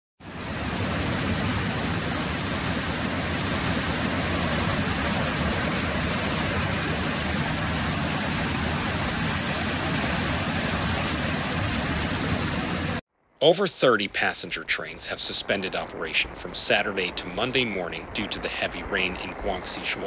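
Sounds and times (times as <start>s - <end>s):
heavy rain on flooded street: 0.2s - 13.0s.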